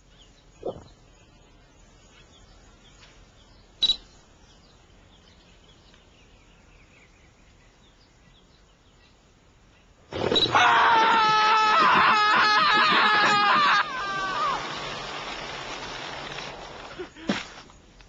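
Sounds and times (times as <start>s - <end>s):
faint bird chirps: 0.0s - 10.5s.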